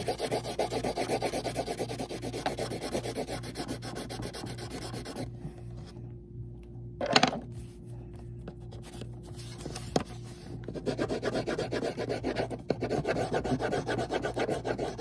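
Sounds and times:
colored pencil rubbing on paper: 0.0 - 5.3, 10.7 - 15.0.

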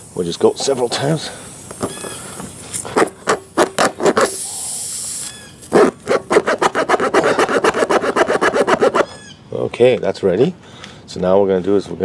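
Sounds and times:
air hiss: 0.0 - 6.2
tool rasping in rubber: 2.8 - 4.6, 5.6 - 9.2.

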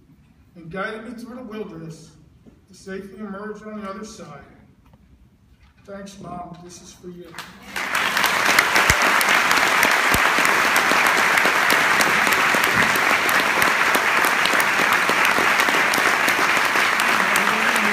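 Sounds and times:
audience applauding: 7.7 - 17.9.

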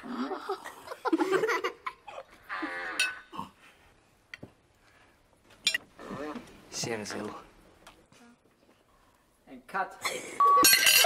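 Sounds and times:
people laughing and giggling: 0.1 - 2.4
cutlery clinking: 5.6 - 5.8, 10.6 - 11.0.

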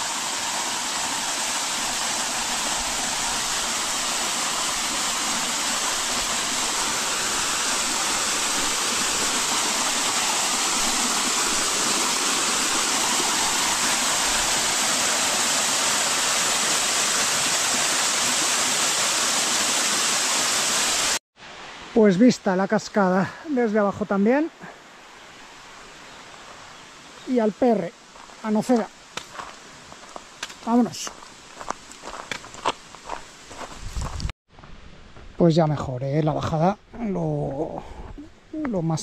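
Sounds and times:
waterfall pouring: 0.0 - 21.2.

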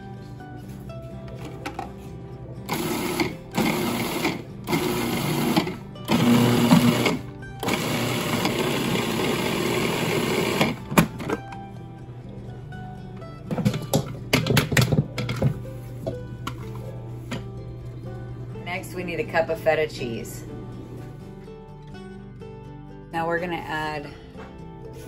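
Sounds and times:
background music: 0.0 - 25.0
food processor chopping: 2.7 - 11.1.

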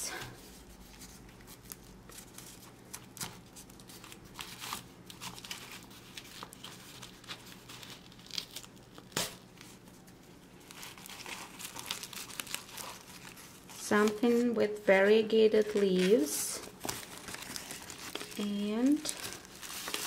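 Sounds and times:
paper crinkling and tearing: 0.3 - 14.5, 15.6 - 20.0.

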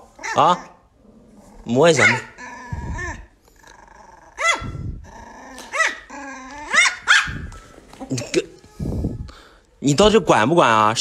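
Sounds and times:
puppy growling yaps: 0.0 - 7.6.

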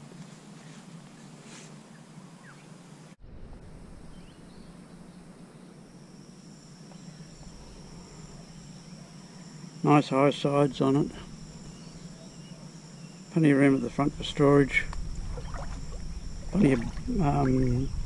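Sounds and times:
high-pitched insect trill: 3.6 - 18.0
bird calls: 11.3 - 14.1.

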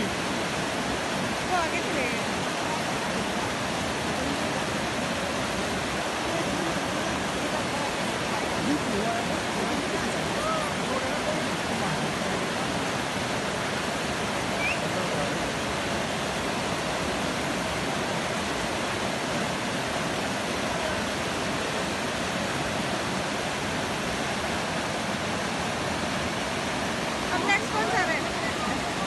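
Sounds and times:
river rushing over rocks: 0.0 - 29.0.

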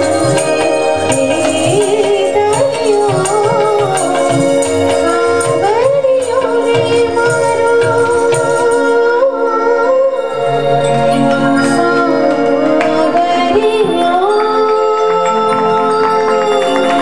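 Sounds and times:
harmonium: 0.0 - 17.0
woman singing long notes: 0.0 - 17.0.

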